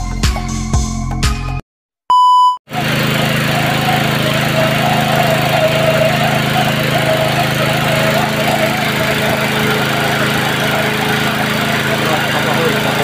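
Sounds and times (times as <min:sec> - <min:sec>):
electronic beep: 0:02.1 - 0:02.6
small water pump engine running: 0:02.7 - 0:13.0
water splashing: 0:03.1 - 0:13.0.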